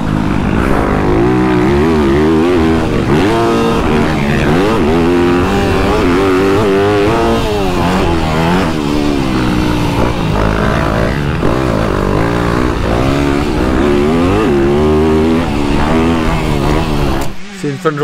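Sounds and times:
motocross bike engine revving: 0.0s - 18.0s.

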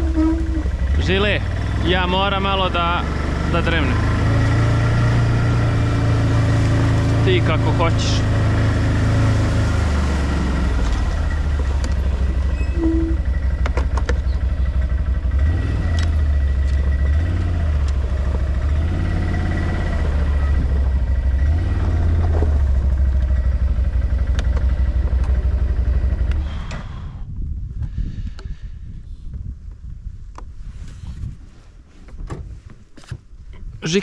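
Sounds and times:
quad engine revving: 0.0s - 27.0s.

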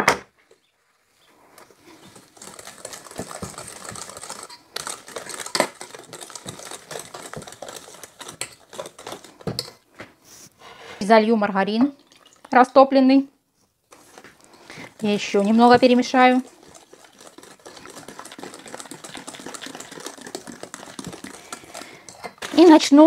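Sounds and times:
wire whisk beating in metal bowl: 2.0s - 9.8s, 14.0s - 23.0s.

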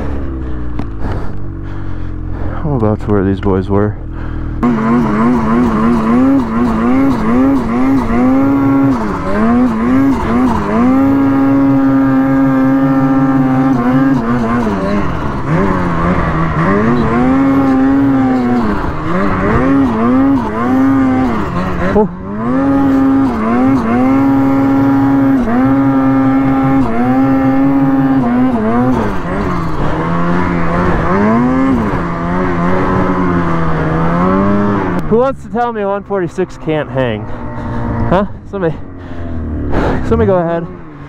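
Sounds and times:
snowmobile engine revving: 0.0s - 41.0s
man talking: 2.5s - 4.1s, 35.0s - 37.3s, 38.0s - 38.9s, 39.8s - 40.8s.

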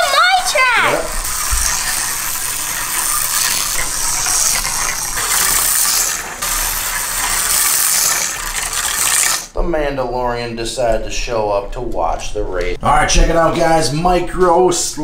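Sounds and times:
slot car motors whirring: 0.0s - 9.5s.

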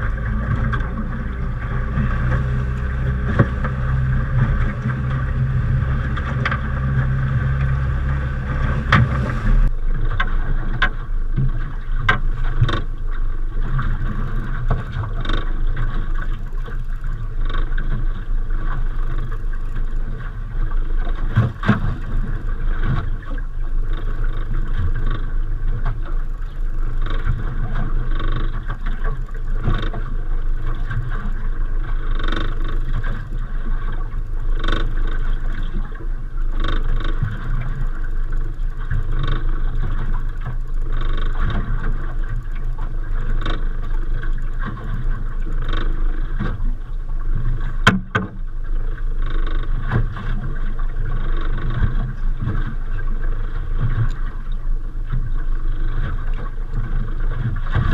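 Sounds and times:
engine knocks: 0.0s - 12.9s, 47.4s - 48.5s
boat engine rumbling: 0.0s - 57.9s.

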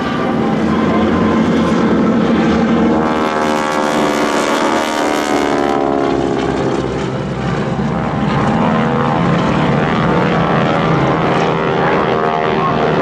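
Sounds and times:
propeller planes flying past: 0.0s - 13.0s.

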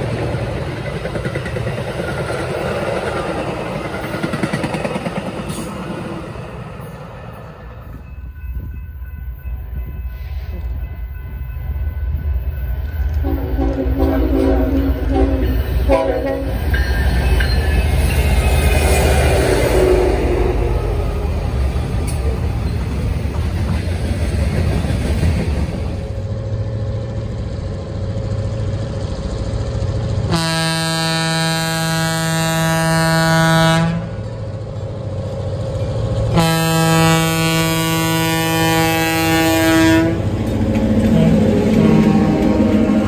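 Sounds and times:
train wheels rumbling on rail: 0.0s - 43.0s
train horn blasts: 13.1s - 16.7s, 19.1s - 21.0s, 30.3s - 34.2s, 36.3s - 40.4s, 41.1s - 43.0s.

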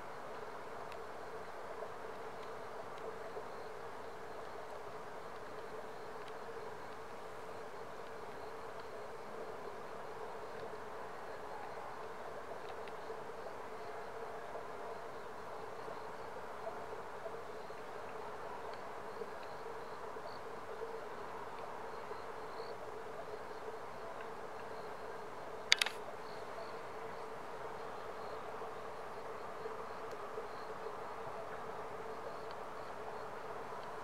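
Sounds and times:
faint high ticks: 0.1s - 14.0s, 17.2s - 22.8s, 25.7s - 27.2s, 29.0s - 31.5s, 32.1s - 33.0s
steady background hum: 24.8s - 31.2s
sharp click: 25.7s - 26.0s.

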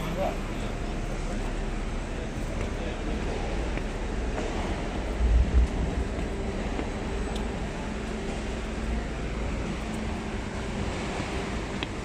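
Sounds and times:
traffic and machinery rumble: 0.0s - 12.0s.

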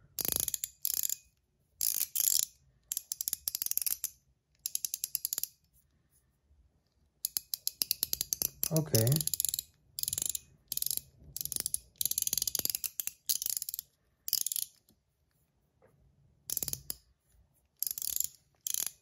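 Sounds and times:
fidget ring ratchet clicking: 0.2s - 5.6s, 7.2s - 14.9s, 16.5s - 17.0s, 17.8s - 19.0s.

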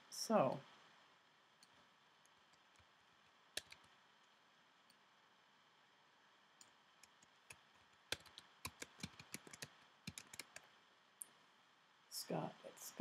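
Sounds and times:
typing on a keyboard: 3.5s - 4.0s, 6.6s - 10.7s.

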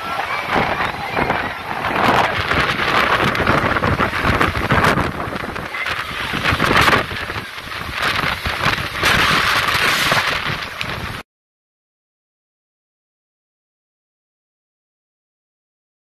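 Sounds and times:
wind gusting on microphone: 0.0s - 11.2s.

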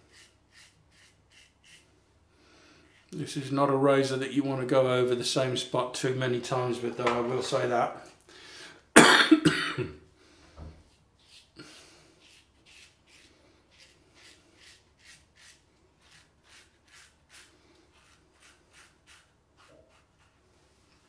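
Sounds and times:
razor scraping stubble: 0.0s - 1.9s, 11.2s - 20.4s.

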